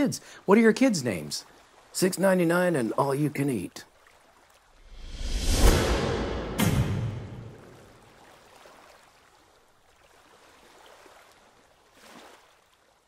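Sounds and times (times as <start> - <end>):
soft whoosh: 4.9 - 7.8.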